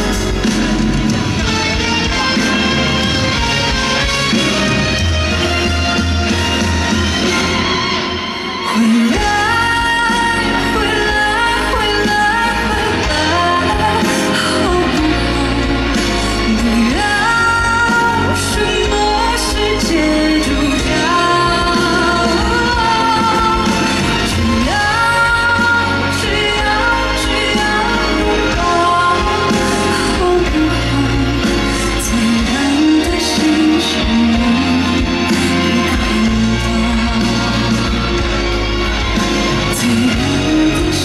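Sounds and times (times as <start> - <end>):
backing music: 0.0 - 41.0
band accompaniment with guitar: 0.0 - 41.0
woman singing into microphone: 8.2 - 38.4, 39.7 - 41.0.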